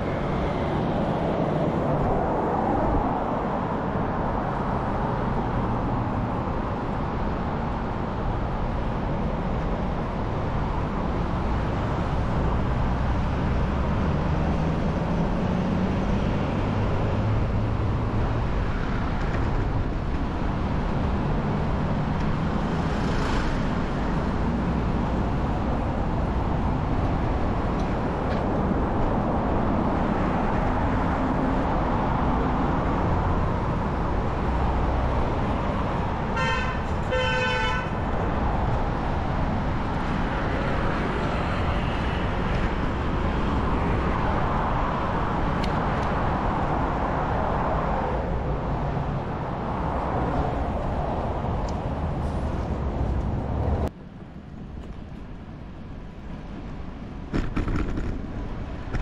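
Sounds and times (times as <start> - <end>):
street traffic: 0.0 - 59.0
wind rumble on microphone: 0.0 - 59.0
car horn honking: 36.4 - 38.0.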